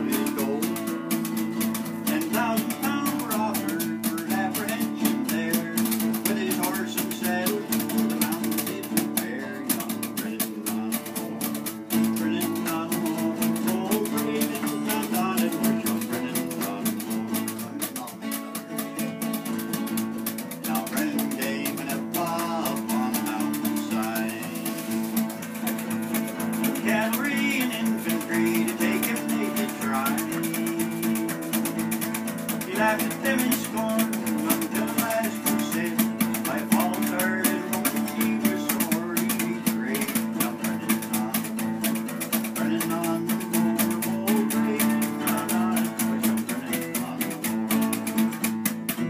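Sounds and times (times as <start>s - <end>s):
acoustic guitar strumming: 0.0s - 49.0s.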